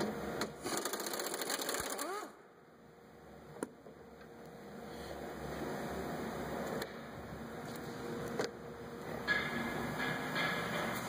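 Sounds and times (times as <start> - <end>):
power ratchet rattling: 0.6 - 2.3.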